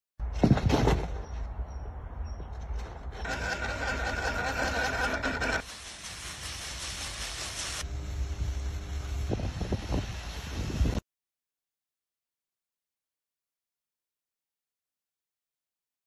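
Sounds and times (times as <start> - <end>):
hiss: 5.6 - 7.9, 9.1 - 11.0.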